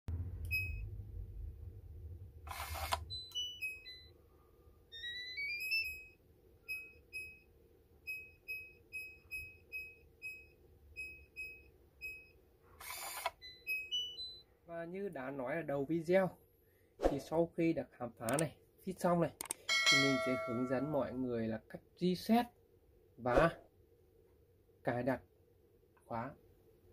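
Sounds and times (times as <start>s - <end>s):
door lock whirring: 2.5s - 4.1s, 5.0s - 6.1s, 12.8s - 14.4s
electronic beeps: 3.1s - 4.1s, 13.4s - 14.4s
falling chime: 19.7s - 21.2s
rising chime: 19.7s - 21.2s.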